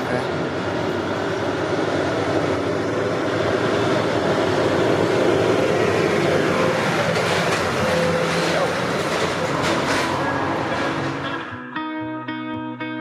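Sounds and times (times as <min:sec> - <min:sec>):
tractor diesel engine: 0:00.0 - 0:11.6.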